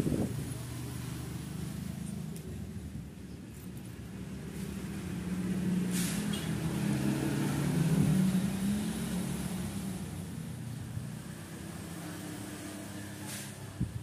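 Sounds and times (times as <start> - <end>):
passing vehicle engine drone: 0.0 - 2.7, 4.1 - 13.9
short hiss: 5.9 - 6.5.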